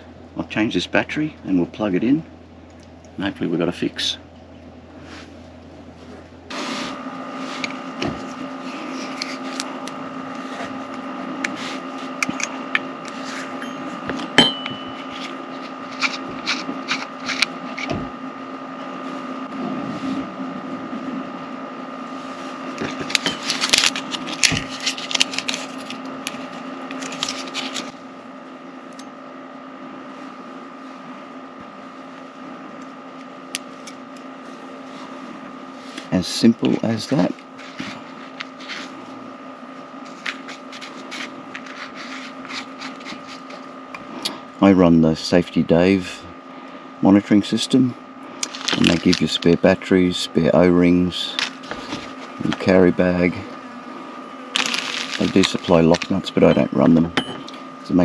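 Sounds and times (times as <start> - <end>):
steady hum: 0.0 - 58.0
small clicks and scrapes: 15.1 - 17.9, 22.8 - 28.0, 40.1 - 43.6
plastic rustling: 22.8 - 28.0, 48.4 - 49.5, 54.5 - 56.3.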